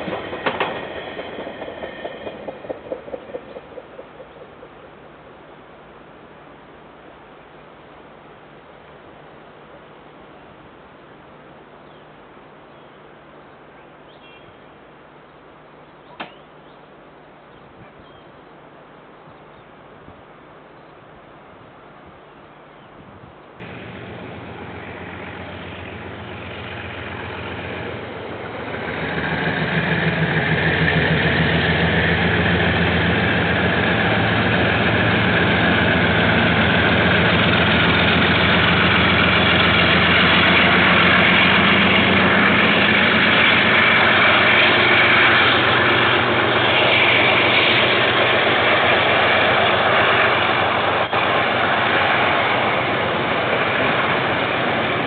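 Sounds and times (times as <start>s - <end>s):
diesel locomotive engine: 0.0s - 8.8s, 23.6s - 55.0s.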